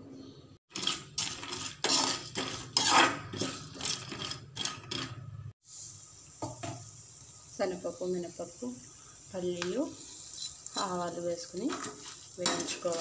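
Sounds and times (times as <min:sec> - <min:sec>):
spatula scraping and clinking pan: 0:00.7 - 0:05.3, 0:10.1 - 0:13.0
faint steady hiss: 0:05.6 - 0:12.4.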